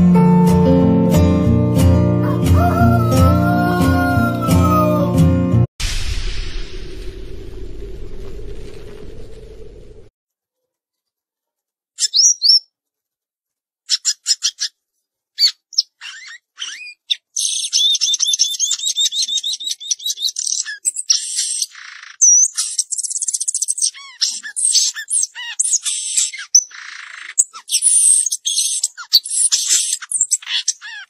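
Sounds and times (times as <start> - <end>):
songbird chirping and trilling: 12.0 - 12.7, 13.9 - 14.8, 15.4 - 31.0.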